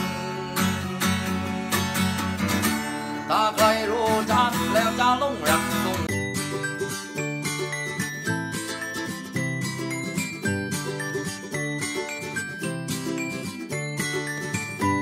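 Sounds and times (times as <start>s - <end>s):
man singing: 0.0s - 1.0s, 3.2s - 6.1s
acoustic guitar strummed chords: 0.0s - 15.0s.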